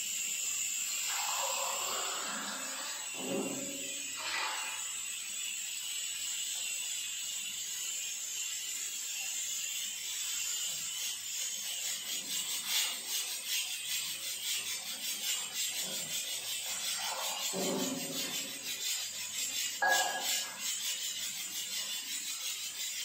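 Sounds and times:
fast scraping strokes: 0:01.0 - 0:05.1, 0:09.8 - 0:23.0.

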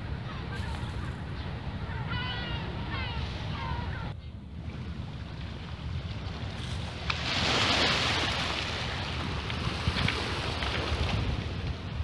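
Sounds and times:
wind rumbling on microphone: 0:00.0 - 0:12.0
waves washing onto rocky shore: 0:06.4 - 0:12.0.

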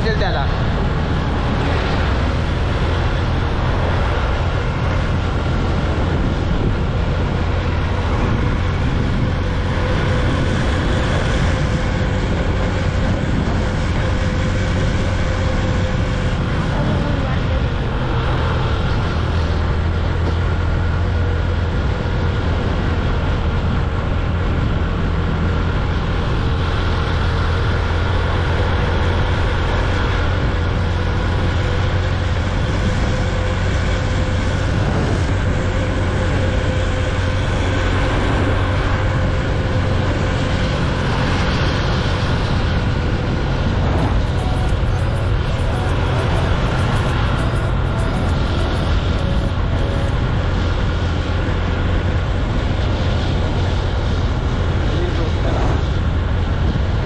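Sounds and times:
wind and road noise: 0:00.0 - 0:57.0
motorcycle engine running: 0:42.8 - 0:51.2.

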